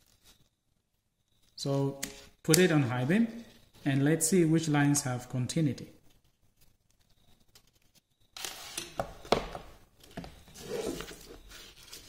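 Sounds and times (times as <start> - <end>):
wires rustling and scraping on paper: 0.0 - 0.6, 6.0 - 8.7, 10.6 - 12.0.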